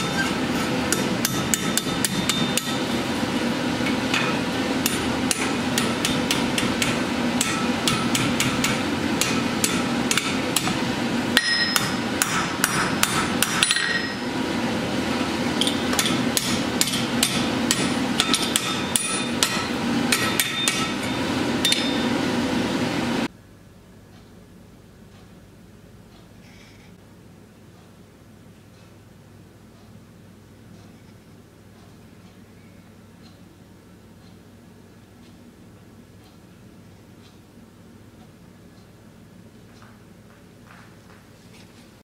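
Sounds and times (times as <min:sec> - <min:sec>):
hammer striking steel on anvil: 0:00.0 - 0:03.0, 0:03.8 - 0:14.4, 0:15.6 - 0:22.2.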